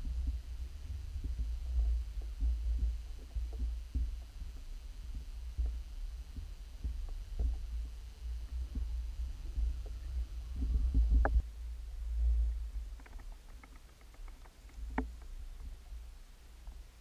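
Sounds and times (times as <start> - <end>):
underwater rumble of water: 0.0 - 13.7
soft knocks and clicks: 13.0 - 15.8.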